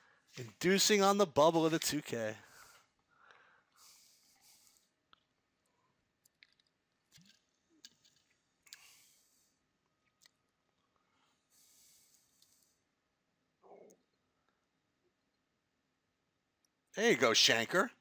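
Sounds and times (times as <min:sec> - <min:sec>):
soft hissy noises: 0:03.8 - 0:04.9, 0:11.2 - 0:12.8
faint clicks: 0:12.1 - 0:12.8.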